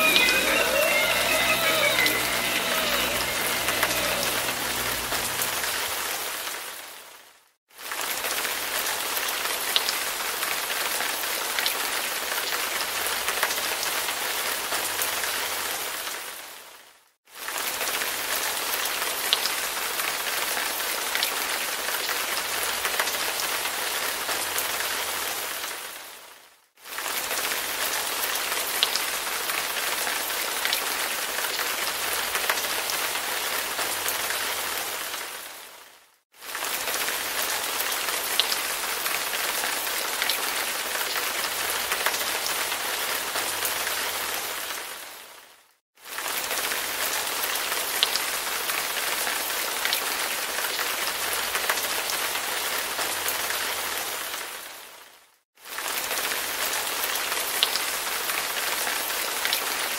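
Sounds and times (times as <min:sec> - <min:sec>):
rain hissing: 0:00.0 - 0:07.0.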